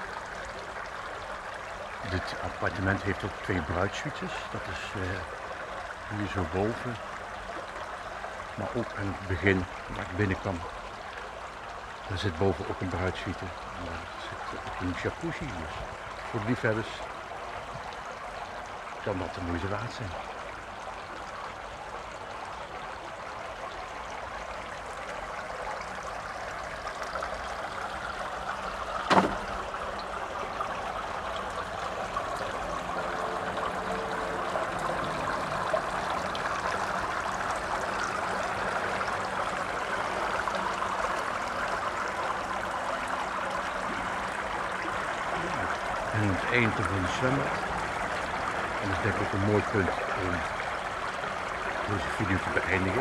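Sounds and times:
running water rushing: 0.0 - 53.0
sharp knock: 29.1 - 29.4.

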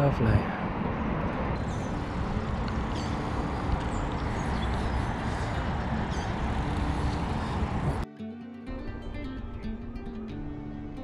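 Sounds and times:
rushing outdoor background noise: 0.0 - 8.1.

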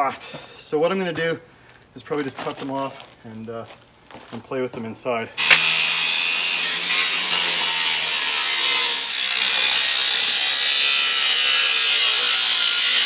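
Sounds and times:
power saw cutting metal pipe: 5.4 - 13.0.

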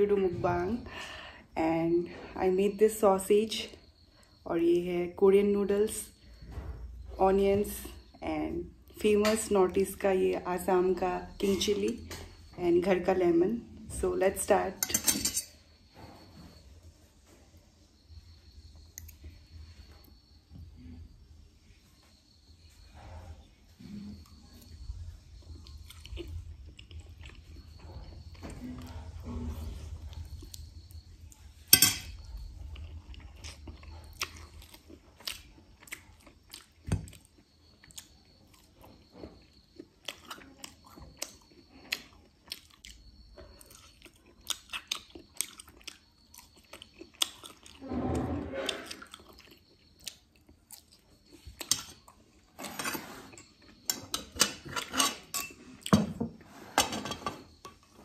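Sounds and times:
wet chewing: 32.2 - 47.8, 48.8 - 52.2
fork scraping ceramic plate: 47.8 - 49.2, 52.6 - 55.8.

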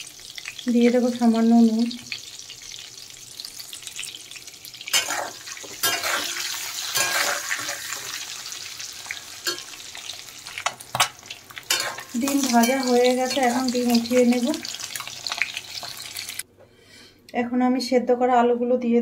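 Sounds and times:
eggs sizzling in hot oil: 0.0 - 16.4
metal spatula scraping pan: 4.9 - 8.5, 11.0 - 13.6.

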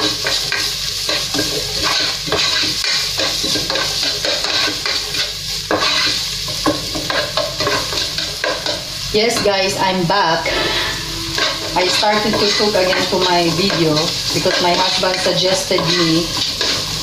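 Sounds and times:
spatula scraping and tapping pan: 0.0 - 9.5, 10.4 - 17.0
onion sizzling in oil: 0.0 - 17.0.

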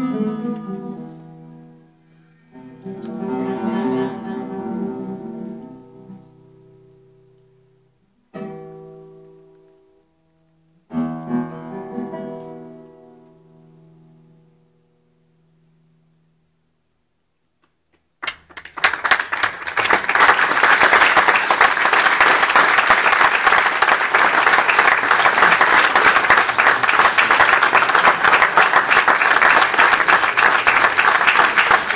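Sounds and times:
classical guitar notes: 0.0 - 16.2
audience applauding: 18.2 - 31.9.

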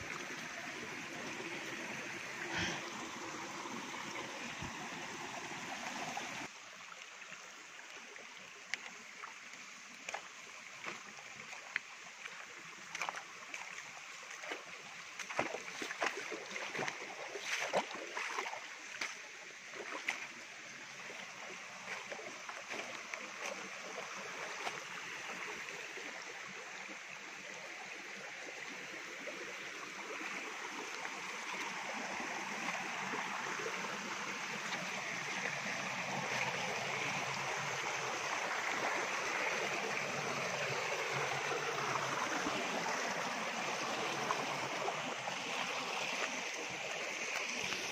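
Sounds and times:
rushing stream water: 0.0 - 47.9.

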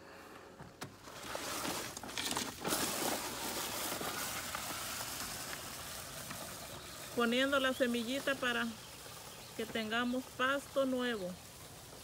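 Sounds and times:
spreader hissing on lawn: 2.7 - 12.0.

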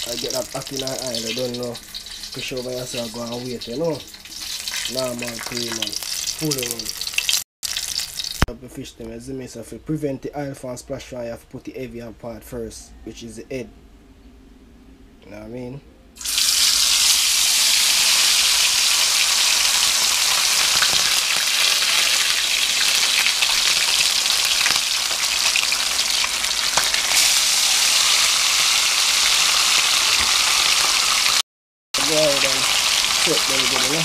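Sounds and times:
fish sizzling in hot oil: 0.0 - 8.5, 16.2 - 31.4, 32.0 - 34.0.

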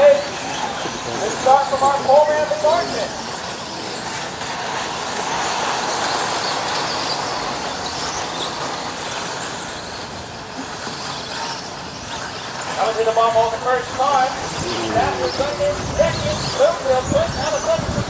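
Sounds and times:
high motor whines: 14.0 - 18.0.

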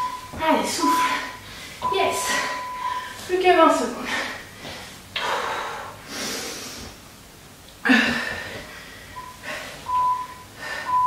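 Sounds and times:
woman breathing hard: 1.0 - 3.3, 4.0 - 7.0, 7.8 - 9.9, 10.5 - 11.0.

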